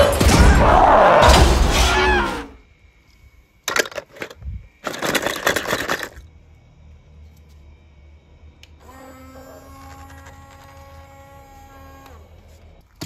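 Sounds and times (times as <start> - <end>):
metal toy cars rattling in bowl: 3.7 - 6.2.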